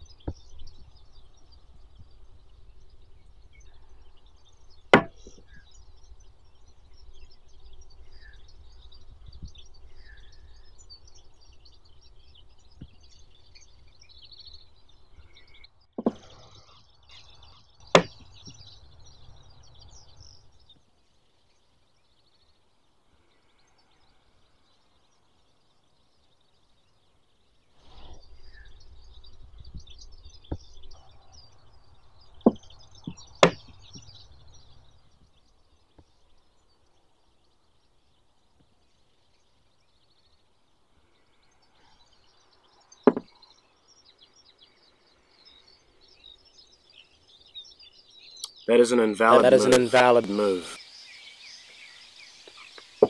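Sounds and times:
birds chirping: 0:00.0 - 0:53.0
chess pieces knocking on board: 0:43.1 - 0:43.3.

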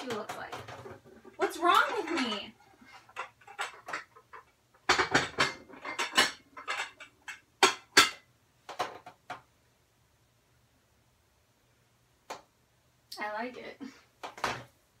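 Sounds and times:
ceramic dishes clinking: 0:01.4 - 0:02.5, 0:04.9 - 0:08.2.

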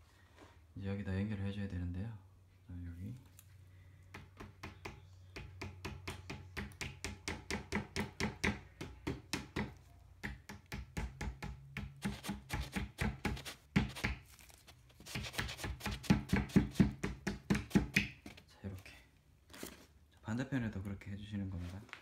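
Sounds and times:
mallet tapping wooden dowels: 0:04.1 - 0:14.2, 0:16.0 - 0:18.3.

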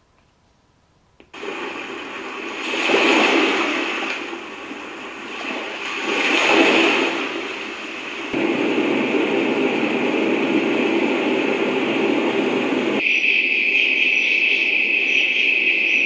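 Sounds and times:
white noise hiss: 0:00.0 - 0:13.0
ocean surf hiss: 0:01.4 - 0:08.4.

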